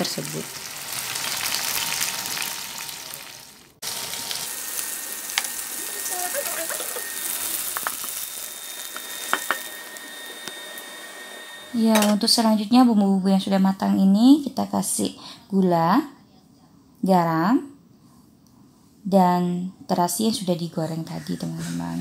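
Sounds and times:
vegetables sizzling in a wok: 0.0s - 12.3s.

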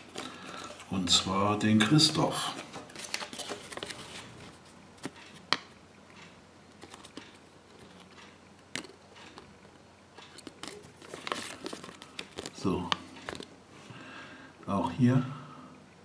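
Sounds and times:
paper rustling: 1.9s - 5.1s, 10.5s - 13.5s.

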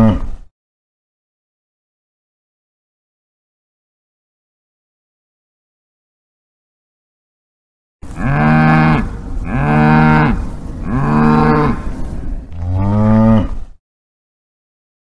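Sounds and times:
cow mooing: 8.0s - 12.0s, 12.6s - 13.6s.

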